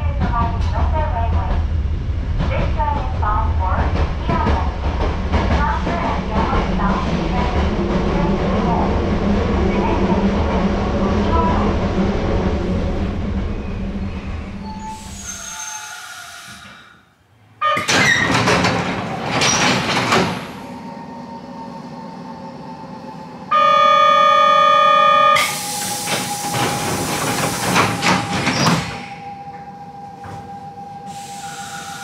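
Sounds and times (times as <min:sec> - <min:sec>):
doors rattling shut: 0:17.7 - 0:20.5
sliding doors with air rush: 0:25.4 - 0:29.2.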